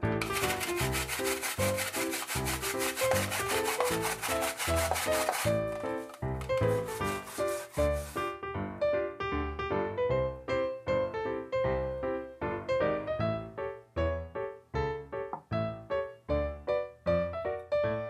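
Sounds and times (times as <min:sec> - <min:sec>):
radish scraping on a metal grater: 0:00.2 - 0:08.2.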